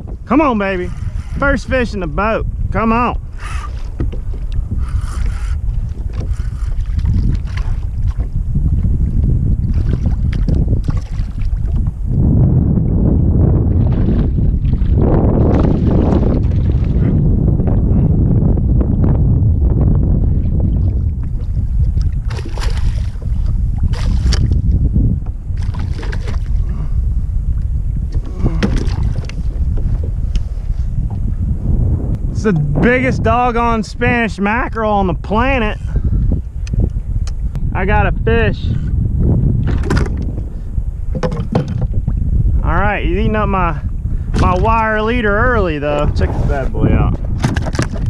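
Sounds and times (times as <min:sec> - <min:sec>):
wind buffeting microphone: 0:00.0 - 0:48.0
water lapping: 0:03.2 - 0:08.3, 0:09.6 - 0:12.0
knocks against kayak hull: 0:32.5 - 0:33.0, 0:41.1 - 0:42.0, 0:47.3 - 0:48.0.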